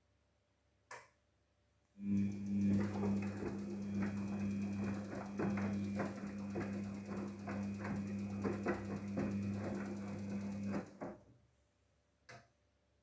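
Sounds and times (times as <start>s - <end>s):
washing machine motor hum: 2.0s - 11.3s
washing machine knock: 2.2s - 11.2s.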